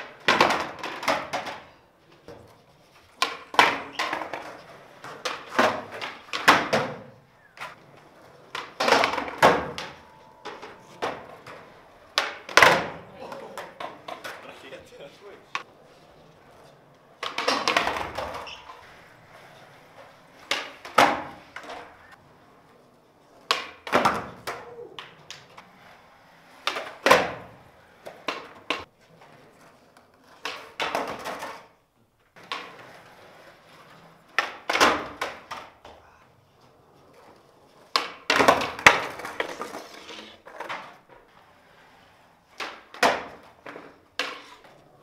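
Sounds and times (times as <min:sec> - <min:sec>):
skateboard tail pops: 0:00.0 - 0:02.5, 0:03.2 - 0:07.8, 0:08.5 - 0:14.4, 0:17.2 - 0:19.5, 0:20.4 - 0:22.2, 0:23.4 - 0:25.6, 0:26.6 - 0:28.9, 0:30.3 - 0:31.7, 0:34.3 - 0:36.0, 0:37.9 - 0:41.1, 0:42.6 - 0:44.9
skateboard clacking and slapping down: 0:00.0 - 0:45.0
skateboard wheels rolling: 0:00.0 - 0:45.0.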